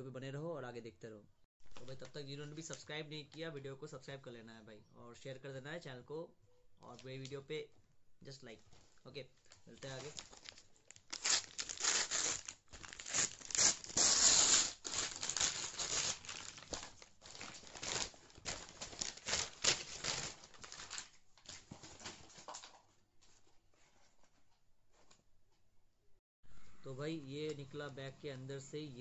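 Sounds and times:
plastic bag ripping and rustling: 0:09.8 - 0:22.6.

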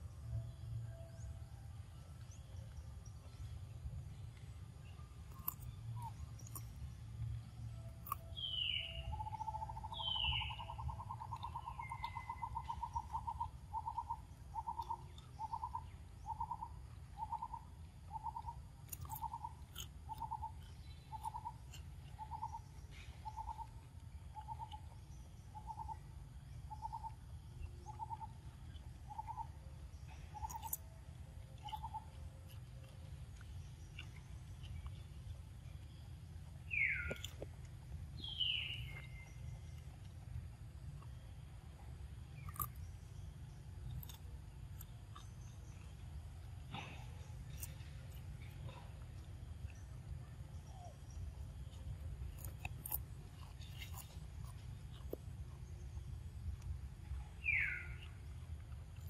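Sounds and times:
bird trilling: 0:08.4 - 0:21.5.

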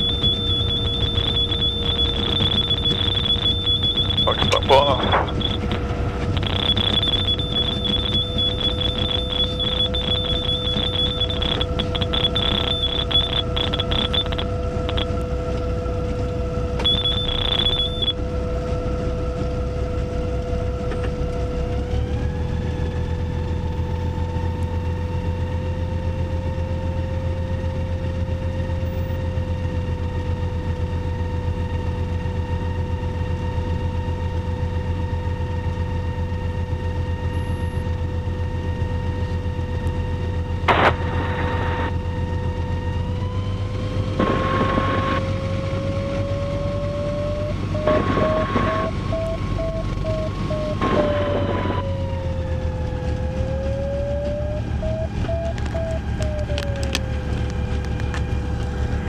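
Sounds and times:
high electronic beeps: 0:00.0 - 0:15.2, 0:16.8 - 0:18.2, 0:47.0 - 0:51.9, 0:54.4 - 0:56.9
propeller engine droning: 0:00.0 - 0:59.0.

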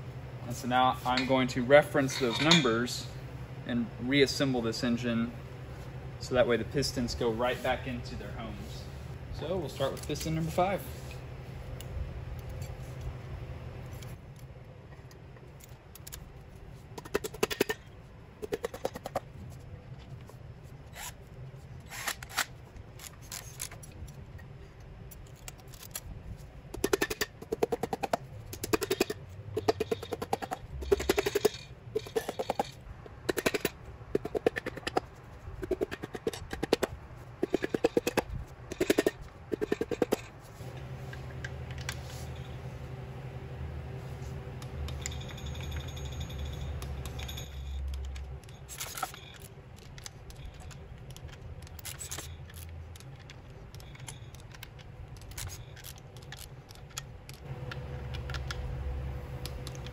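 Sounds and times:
hand ratchet clicking: 0:26.8 - 0:40.3.

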